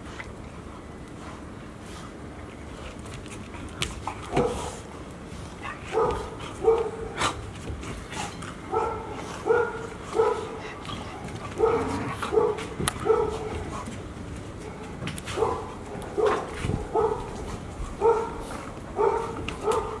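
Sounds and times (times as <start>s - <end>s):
paws scuffling on hard floor: 1.2s - 20.0s
dogs barking: 5.8s - 7.3s, 8.7s - 13.8s, 14.6s - 20.0s.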